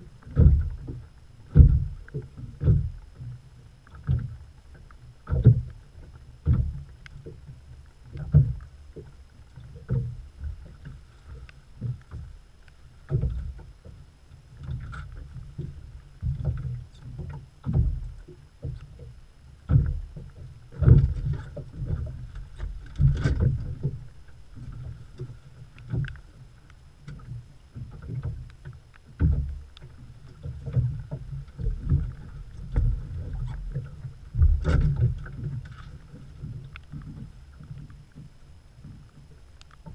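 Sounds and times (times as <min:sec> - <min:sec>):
water slapping boat hull: 0:00.0 - 0:39.9
sharp knocks on hull: 0:00.3 - 0:03.0, 0:20.8 - 0:24.0, 0:34.4 - 0:35.6.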